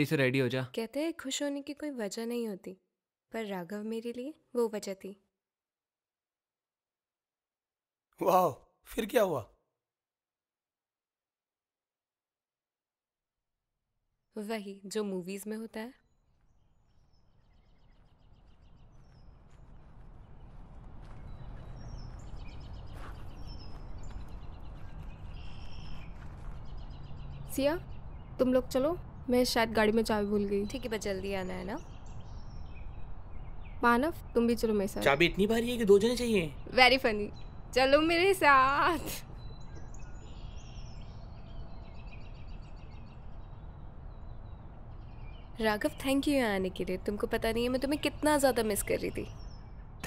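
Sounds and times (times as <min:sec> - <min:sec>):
birds chirping: 0:14.4 - 0:50.0
steady low rumble: 0:18.4 - 0:31.2.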